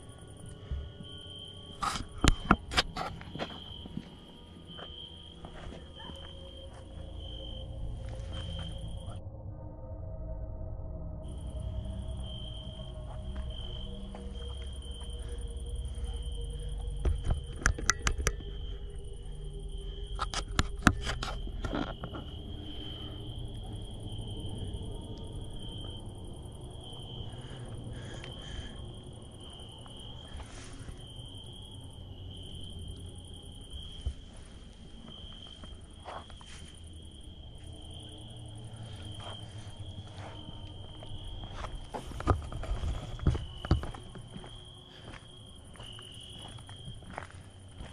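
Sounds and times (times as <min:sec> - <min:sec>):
higher insect sound: 0:00.0 - 0:09.2, 0:11.1 - 0:47.9
crickets chirping: 0:00.0 - 0:47.9
sharp clicks or knocks: 0:17.2 - 0:18.4.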